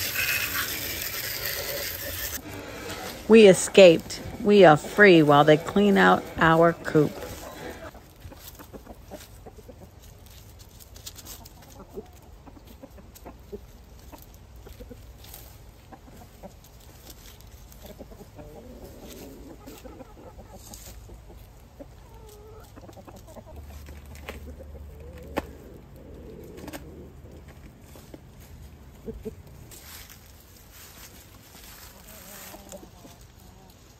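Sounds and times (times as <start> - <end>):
hens clucking softly: 4.1 - 10.3, 11.2 - 29.8, 31.6 - 33.9.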